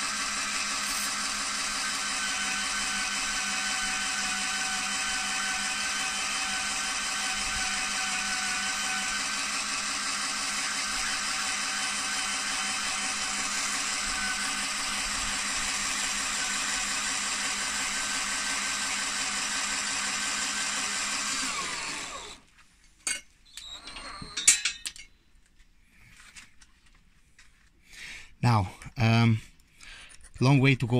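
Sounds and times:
battery drill whining: 0:00.0 - 0:22.5, 0:23.4 - 0:24.6.

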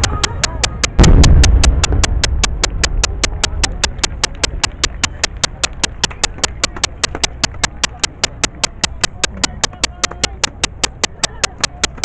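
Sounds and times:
faint voices: 0:00.0 - 0:01.0, 0:02.8 - 0:12.0
steady sharp clicking: 0:00.0 - 0:12.0
low rumble: 0:01.0 - 0:06.4.

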